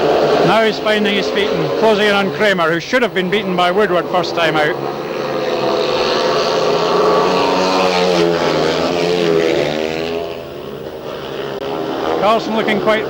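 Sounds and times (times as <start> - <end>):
motorcycles racing: 0.0 - 13.0.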